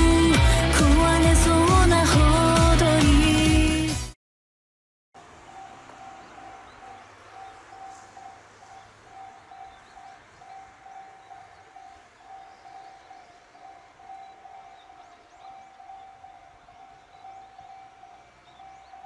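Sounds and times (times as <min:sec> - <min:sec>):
faint bird chirps: 0:05.3 - 0:19.0.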